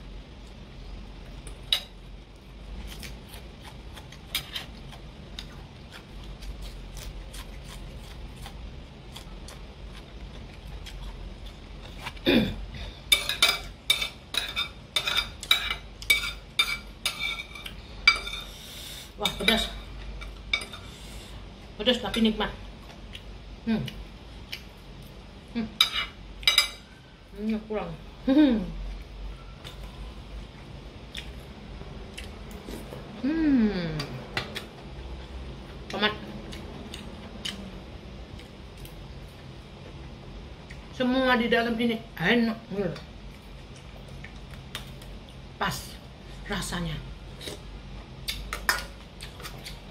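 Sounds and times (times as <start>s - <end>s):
cutlery clinking against metal bowl: 13.1s - 18.5s, 25.8s - 26.8s.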